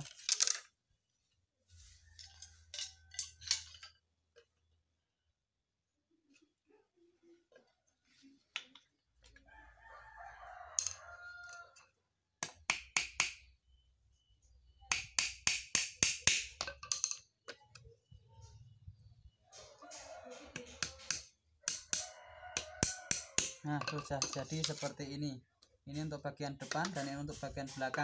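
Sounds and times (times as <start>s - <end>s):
rooster crowing: 9.4s - 11.8s, 21.8s - 23.6s.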